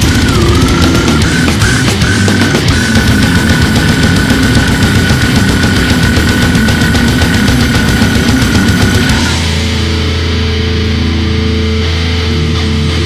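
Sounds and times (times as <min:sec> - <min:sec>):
rapid drumming: 0:00.0 - 0:10.1
death metal band playing: 0:00.0 - 0:13.0
distorted guitar chord ringing: 0:00.0 - 0:13.0.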